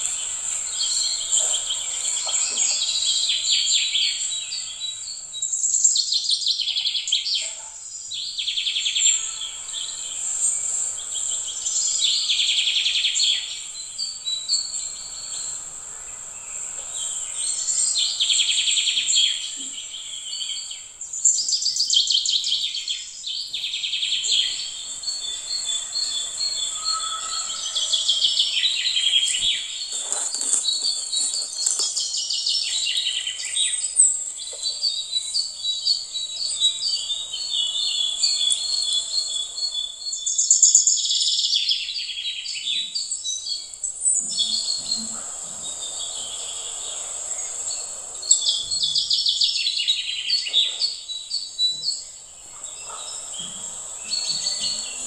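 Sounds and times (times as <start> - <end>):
high-pitched insect hum: 0.0 - 6.0, 8.7 - 34.4, 35.1 - 41.6, 43.0 - 55.0
insects trilling: 0.0 - 7.2, 7.9 - 55.0
birds chirping: 0.0 - 55.0.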